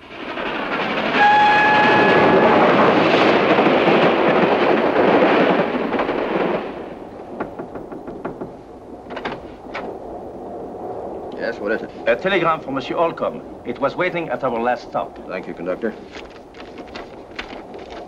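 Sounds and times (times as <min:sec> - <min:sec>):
steam train rushing past: 0:00.0 - 0:08.5
train whistle blast: 0:01.2 - 0:02.6.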